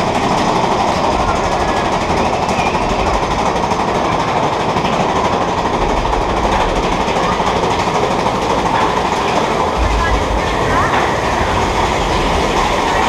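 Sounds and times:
roller coaster rattling on track: 0.0s - 13.0s.

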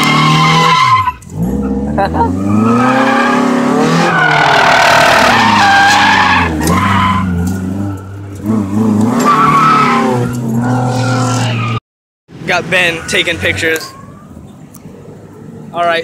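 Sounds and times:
car engine revving: 0.0s - 11.8s
tires squealing: 0.0s - 11.8s, 12.4s - 14.6s.

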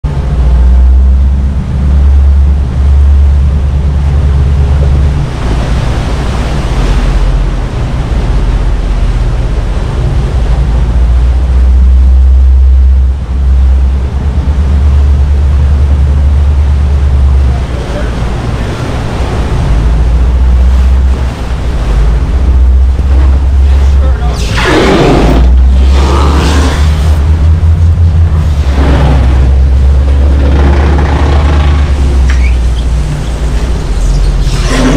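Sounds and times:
boat engine drone: 0.0s - 34.9s
water rushing and churning: 0.0s - 34.9s
wind buffeting microphone: 0.0s - 34.9s.

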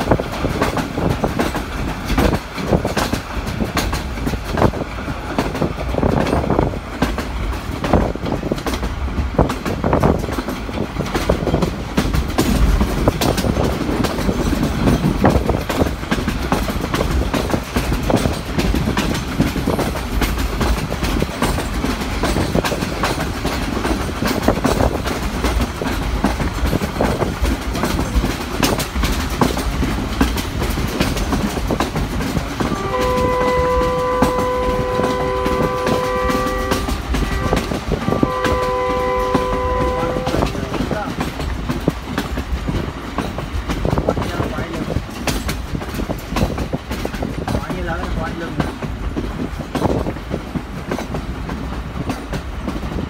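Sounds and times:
train wheels clickety-clack: 0.0s - 53.0s
locomotive horn blast: 32.7s - 40.8s.

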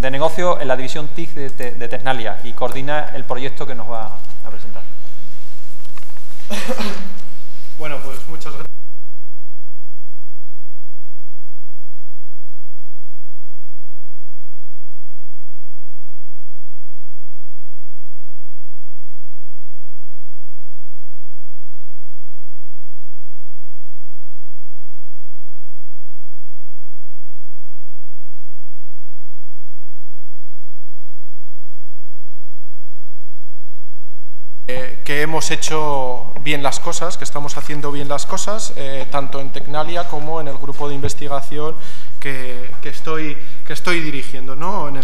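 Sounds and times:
electrical mains hum: 0.0s - 8.7s.

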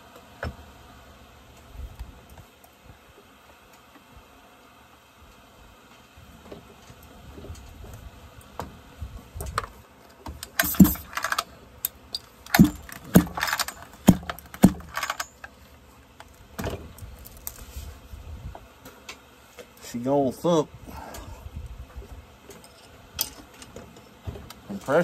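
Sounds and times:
metal parts clinking and rattling: 10.4s - 15.6s.

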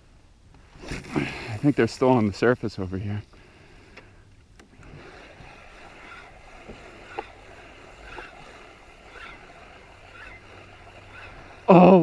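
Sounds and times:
kayak paddle splashing: 4.6s - 12.0s.

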